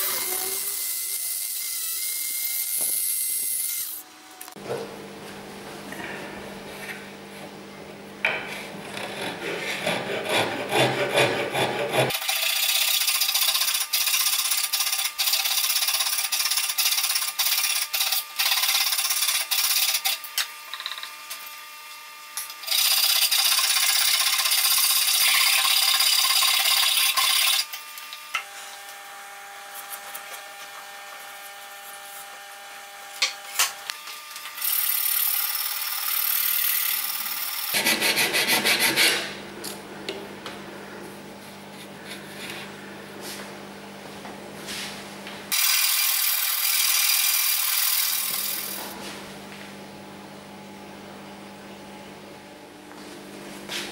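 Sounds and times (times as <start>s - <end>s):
hand rasp scraping wood: 8.8s - 13.8s, 37.7s - 39.4s.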